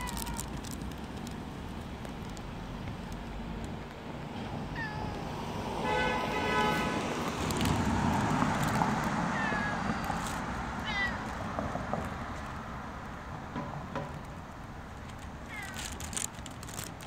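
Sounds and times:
cat meowing: 0.0s - 0.6s, 4.6s - 5.5s, 9.1s - 11.4s, 15.5s - 15.9s
street background noise: 0.0s - 17.0s.

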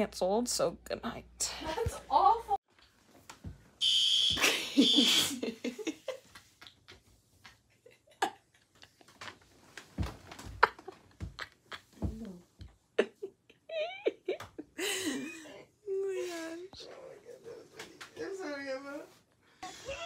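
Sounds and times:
fire alarm beep: 3.8s - 5.1s
stifled giggles: 10.6s - 15.6s.

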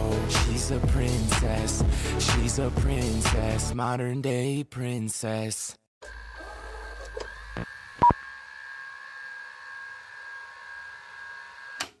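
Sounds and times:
high electronic tones: 7.6s - 8.2s.

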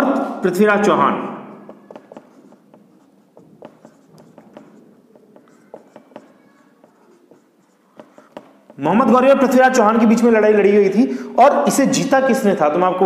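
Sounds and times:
marker writing on whiteboard: 1.5s - 9.5s.

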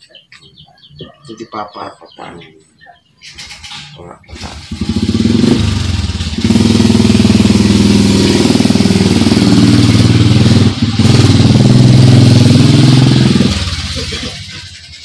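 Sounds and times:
engine running loudly: 4.4s - 15.0s.

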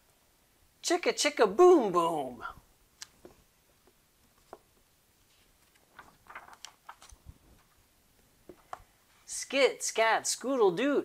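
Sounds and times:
book page rustling: 3.0s - 8.9s.

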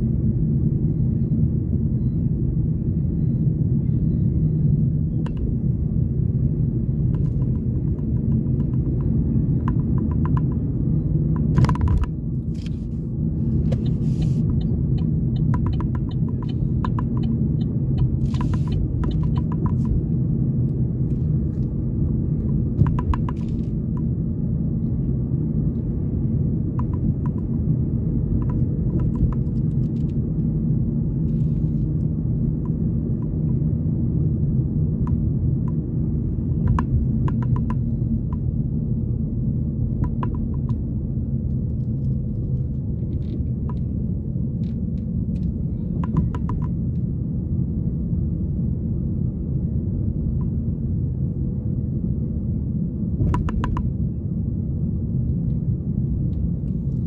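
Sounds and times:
car interior engine and tyre rumble: 0.0s - 57.0s.

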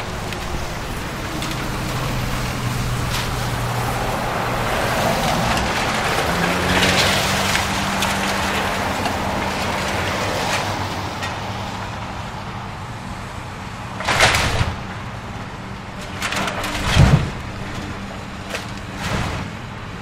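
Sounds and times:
debris breaking: 0.0s - 11.4s, 14.0s - 14.9s, 15.8s - 19.9s
excavator engine running: 0.0s - 20.0s
sharp cracks: 14.0s - 14.9s.

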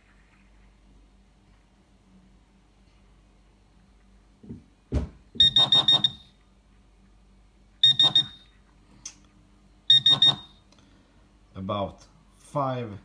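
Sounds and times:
metal detector beeping: 5.4s - 6.3s, 7.8s - 8.6s, 9.9s - 10.6s.

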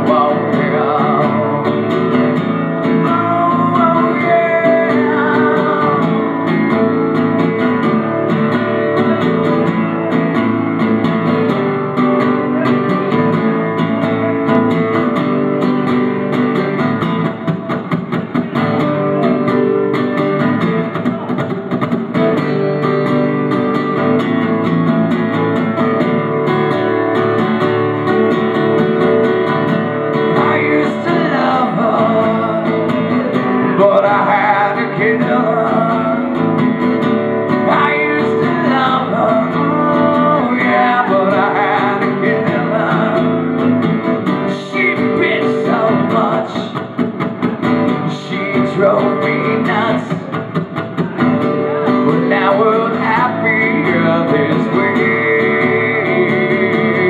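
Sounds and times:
man singing: 0.0s - 7.9s, 29.5s - 47.0s, 47.9s - 50.7s, 51.7s - 57.0s
acoustic guitar strumming: 0.0s - 57.0s.

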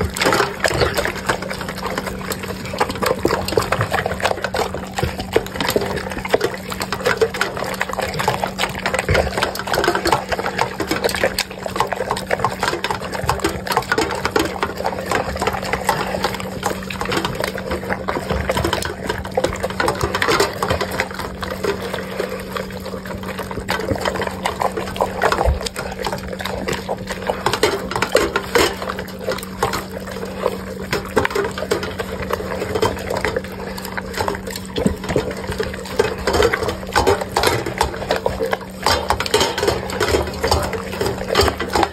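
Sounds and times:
dog lapping and chewing: 0.0s - 41.9s.

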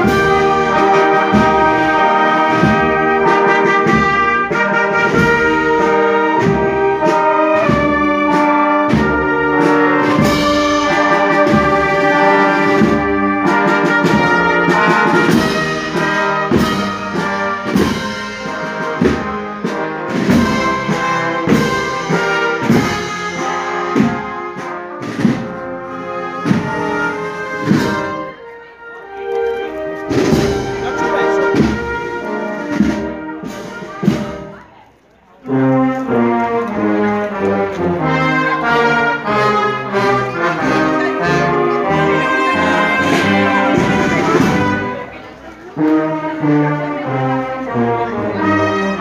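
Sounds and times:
marching brass band playing: 0.0s - 34.8s, 35.4s - 49.0s
drum beat: 30.1s - 34.5s, 42.3s - 44.9s.

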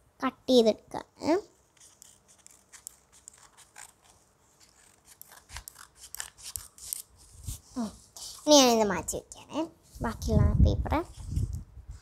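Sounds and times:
scissors cutting paper: 1.7s - 7.1s.

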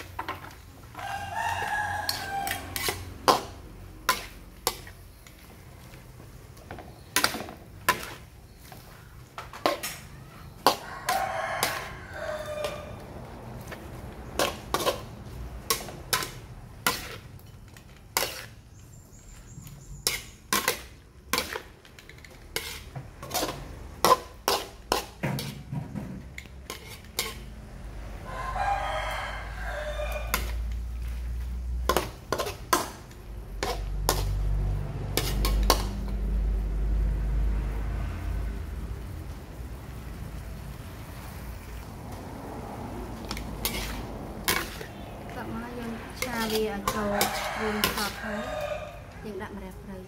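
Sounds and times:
rooster crowing: 0.9s - 3.1s, 10.2s - 13.4s, 27.9s - 30.7s, 46.8s - 49.5s
metal spatula scraping a wok: 1.6s - 13.0s, 13.6s - 28.8s, 29.4s - 36.3s, 43.2s - 49.4s.

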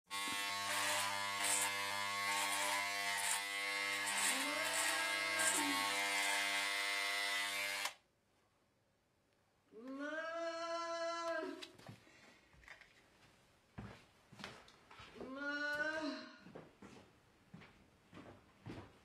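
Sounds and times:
electric shaver buzzing: 0.1s - 8.0s
shaver rasping on stubble: 0.1s - 8.0s.

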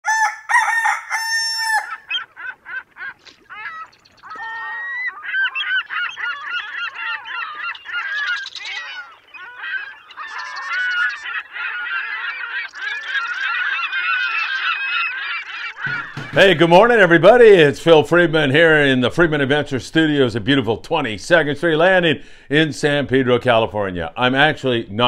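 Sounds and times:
flock of birds calling: 0.0s - 17.6s.

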